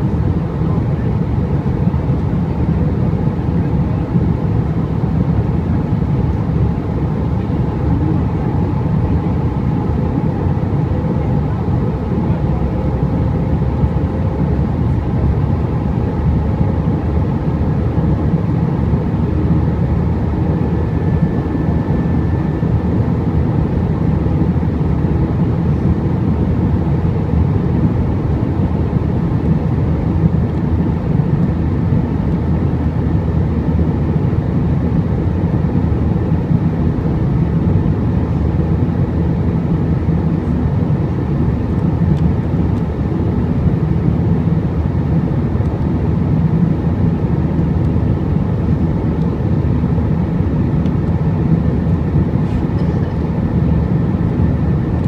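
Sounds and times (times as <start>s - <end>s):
jet engine and airflow drone: 0.0s - 55.0s
faint high whine: 18.7s - 25.0s.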